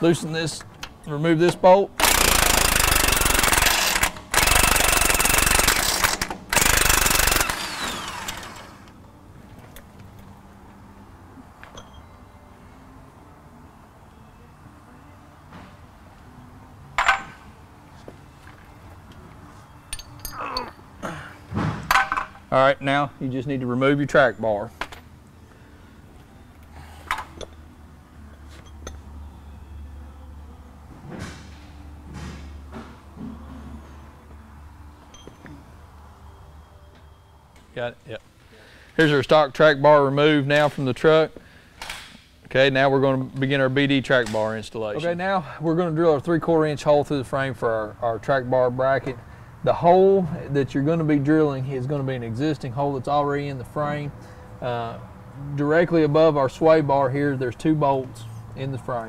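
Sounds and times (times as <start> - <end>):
impact wrench hammering: 2.0 - 8.8, 17.0 - 17.4
impact wrench spinning down: 2.0 - 8.9
metal clinks and knocks: 11.6 - 12.1, 17.0 - 17.5, 19.9 - 20.8, 28.5 - 29.1, 35.1 - 35.6.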